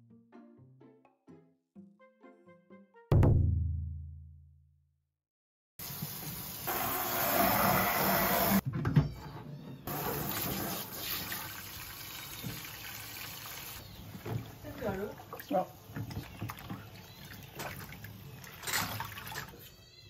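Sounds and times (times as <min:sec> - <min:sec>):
water filling a plastic basin: 0:09.9 - 0:19.6.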